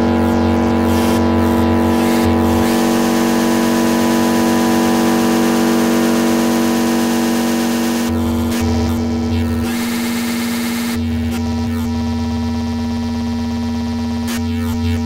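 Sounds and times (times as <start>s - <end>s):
dense noise wash: 0.0s - 8.2s
pulsing low bass: 0.0s - 9.9s
synthesizer drone: 0.0s - 11.8s.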